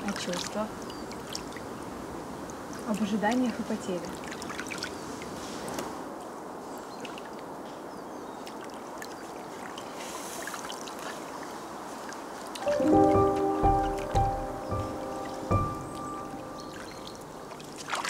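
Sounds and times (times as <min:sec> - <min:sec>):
small water splashes: 0:00.0 - 0:06.0, 0:06.8 - 0:12.7, 0:16.7 - 0:18.0
pond water lapping: 0:02.6 - 0:05.9, 0:08.4 - 0:18.0.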